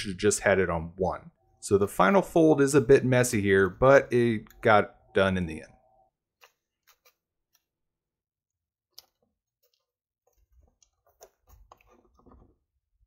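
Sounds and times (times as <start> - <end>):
tape rustling: 6.3 - 7.8, 8.9 - 12.6.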